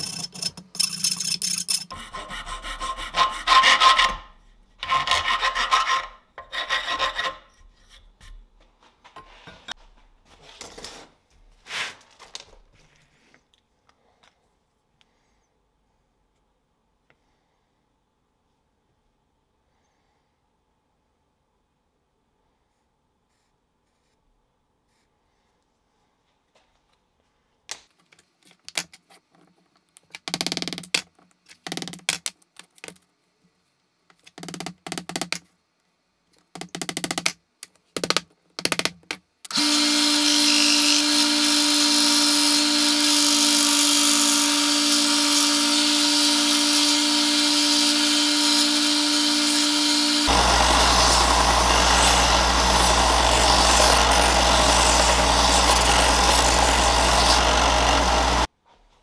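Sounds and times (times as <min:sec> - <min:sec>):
scraping strokes: 0:11.6 - 0:12.1
power tool whining: 0:39.5 - 0:58.5.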